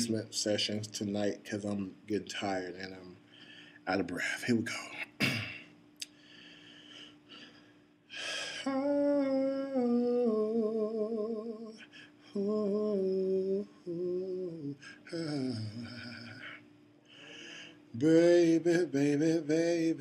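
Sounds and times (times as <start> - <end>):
sharp intake of breath: 6.1 - 8.6, 17.1 - 17.8
man humming a melody: 8.5 - 16.6.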